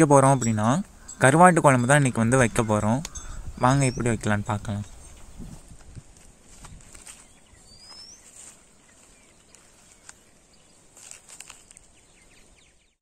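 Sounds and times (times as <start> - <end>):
faint clicks and rustles: 5.2 - 12.0.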